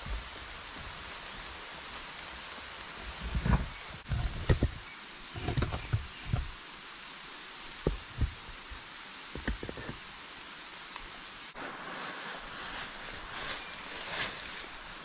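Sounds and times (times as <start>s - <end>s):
rain falling in forest: 0.0s - 15.0s
dry leaves rustling: 11.5s - 15.0s.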